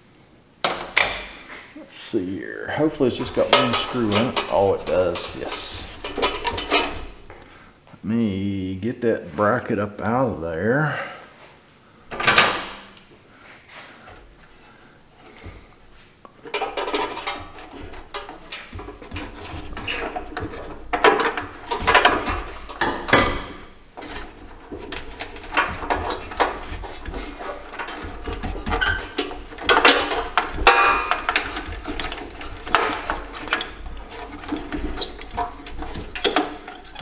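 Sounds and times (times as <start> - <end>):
metal parts clattering and scraping: 3.0 - 7.3, 16.4 - 37.0.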